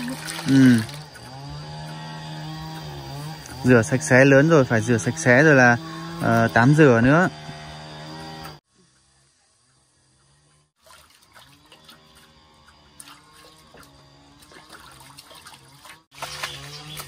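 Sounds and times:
water splashing and trickling: 0.0 - 3.8, 10.8 - 17.0.

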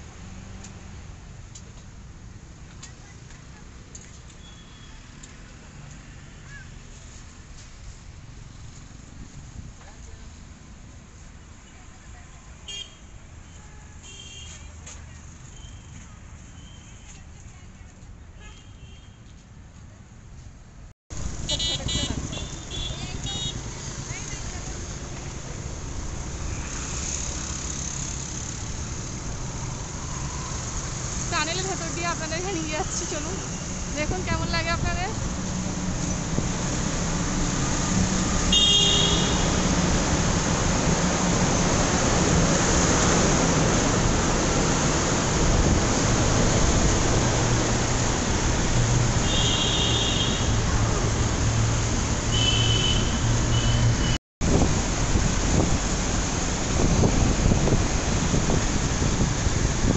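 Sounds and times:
tyres on the road: 0.0 - 59.9
vehicle horns: 13.6 - 14.6, 21.4 - 23.6, 38.3 - 39.7, 49.2 - 50.6, 52.3 - 54.2
motor vehicle engines rumbling: 19.4 - 59.9
motorbike engine hum: 21.2 - 25.4.

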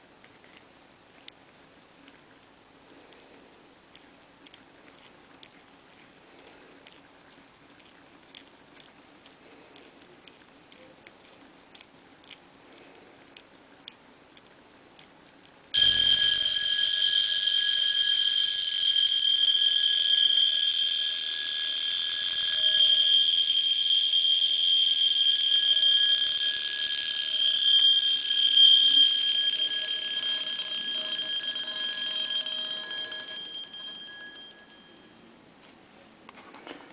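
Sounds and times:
alarm watch ringing: 15.8 - 35.2.

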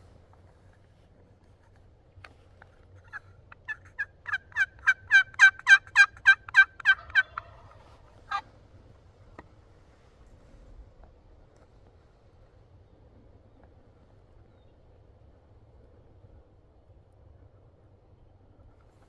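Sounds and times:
turkey yelping: 3.0 - 8.5.

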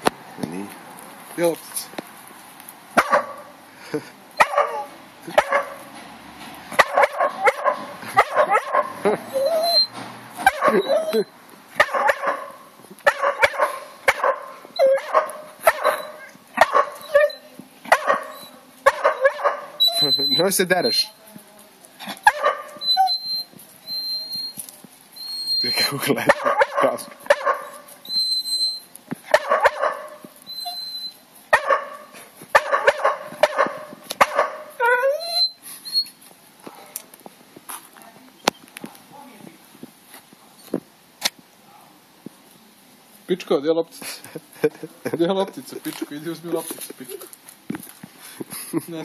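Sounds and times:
dog barking and yipping: 3.0 - 3.6, 4.4 - 5.9, 6.7 - 21.0, 22.1 - 23.4, 25.4 - 36.0
dog whining: 7.0 - 11.3, 14.8 - 18.6, 19.2 - 21.1, 22.2 - 24.6, 25.2 - 26.0, 27.4 - 28.9, 30.5 - 31.2, 34.8 - 36.2.

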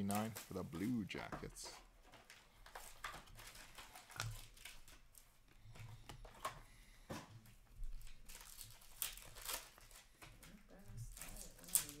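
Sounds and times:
trading cards rustling: 0.0 - 6.6, 7.9 - 12.0.

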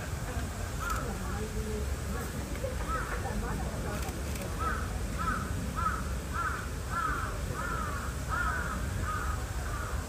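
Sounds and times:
crow cawing: 4.6 - 10.0.

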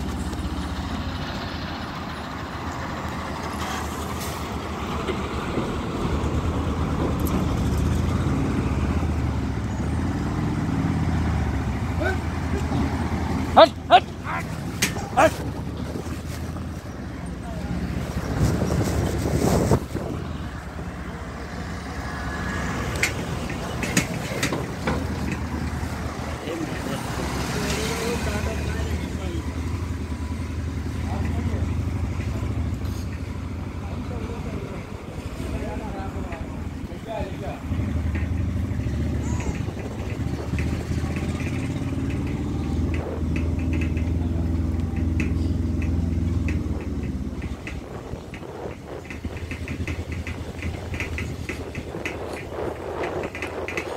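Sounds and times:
vehicle engine running: 0.0 - 53.9.

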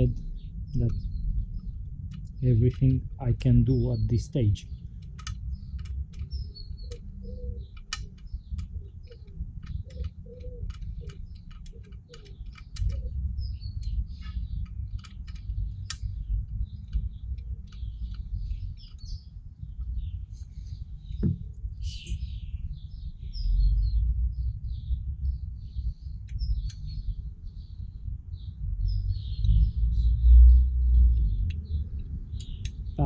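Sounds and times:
small birds chirping: 0.0 - 33.0
steady low rumble: 0.0 - 33.0
metal clicks of bicycle spokes: 5.0 - 13.1, 13.7 - 19.1.

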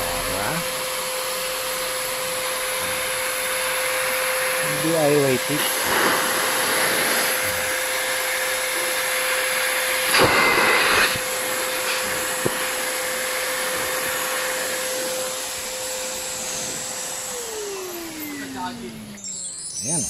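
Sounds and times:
vacuum cleaner motor whine: 0.0 - 20.0
rushing air through hose: 4.6 - 18.7.

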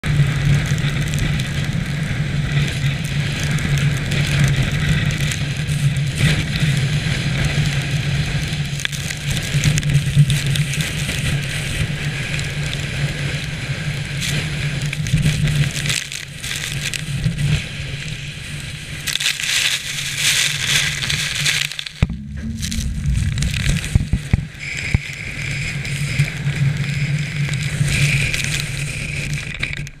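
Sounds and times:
storm wind and rain battering camera: 0.0 - 30.0
steady low hum: 22.0 - 25.8.

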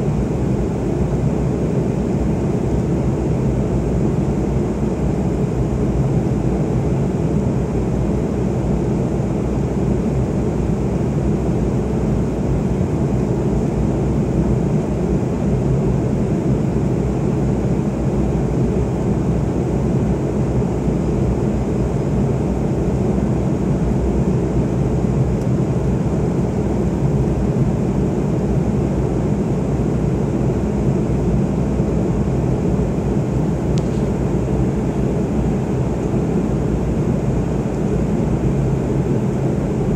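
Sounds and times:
airliner cabin engine rumble: 0.0 - 39.9.

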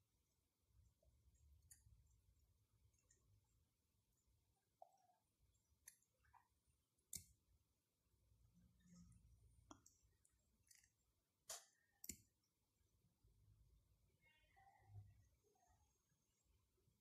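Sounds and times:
faint clicks of crafting tool: 8.9 - 12.4.

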